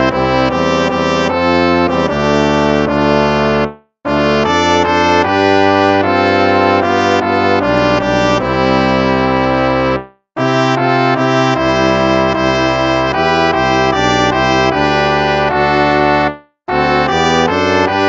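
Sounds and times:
brass playing hymn chords: 0.0 - 18.0.

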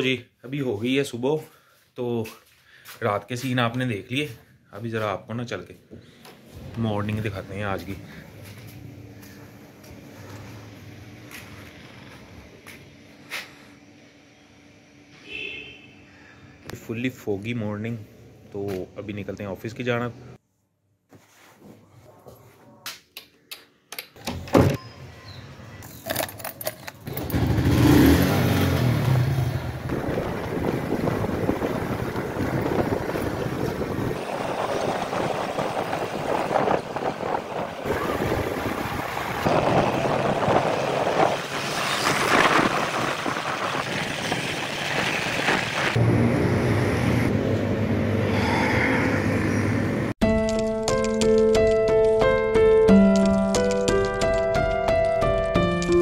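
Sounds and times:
road and traffic noise: 5.7 - 17.0, 18.0 - 20.4, 24.8 - 50.2
vehicle engine running: 6.5 - 14.1, 27.1 - 48.4.

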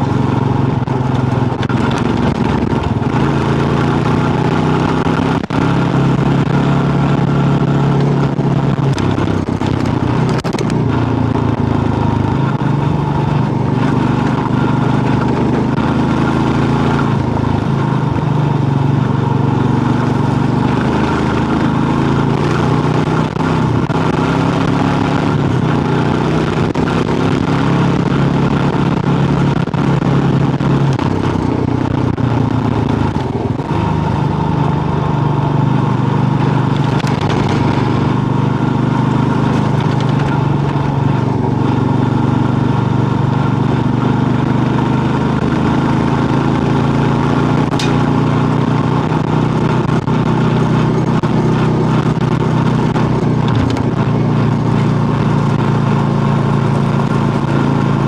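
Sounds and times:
motorcycle engine running: 0.0 - 58.0
wind rush: 16.4 - 44.0.

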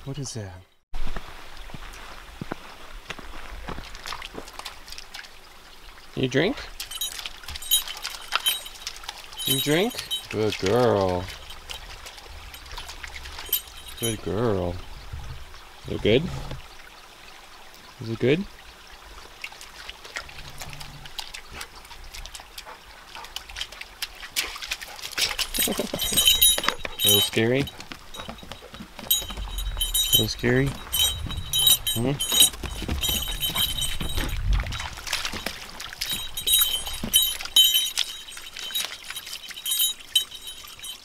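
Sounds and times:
water trickling: 3.3 - 41.0
dog drinking and splashing: 6.5 - 14.8, 19.4 - 41.0.

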